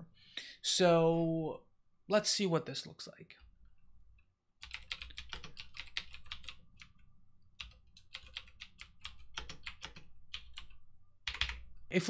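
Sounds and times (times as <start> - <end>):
typing on computer keyboard: 4.6 - 7.0, 7.6 - 11.7.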